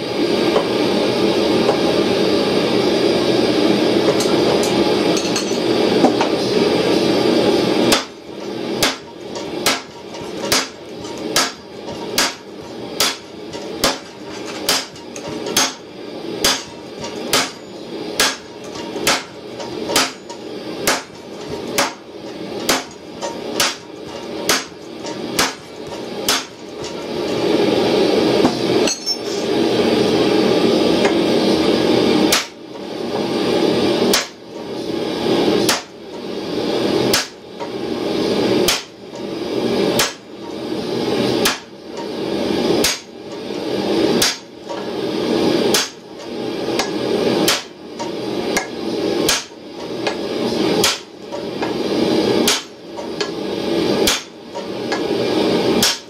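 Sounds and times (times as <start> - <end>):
hammer striking hot steel on anvil: 4.0 - 6.6, 7.8 - 27.7, 28.3 - 29.6, 32.2 - 32.6, 34.0 - 34.8, 35.6 - 36.3, 37.0 - 37.8, 38.5 - 40.6, 41.3 - 43.5, 44.1 - 55.2, 55.8 - 56.0.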